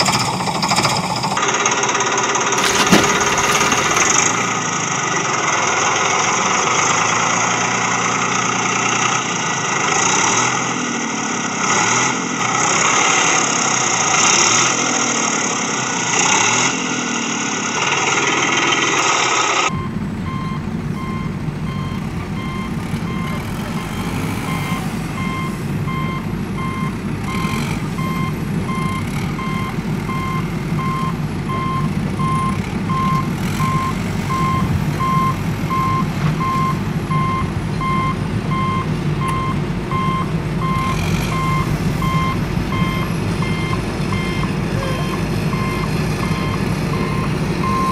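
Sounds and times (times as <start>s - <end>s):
engine-like noise: 0.0s - 47.9s
reversing alarm beeping: 2.6s - 4.6s, 19.7s - 47.9s.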